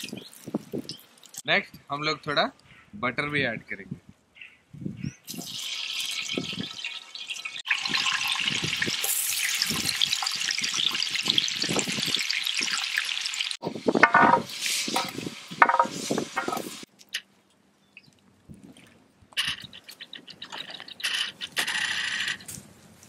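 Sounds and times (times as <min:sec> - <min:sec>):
butter sizzling in hot oil: 0:05.3 - 0:16.9.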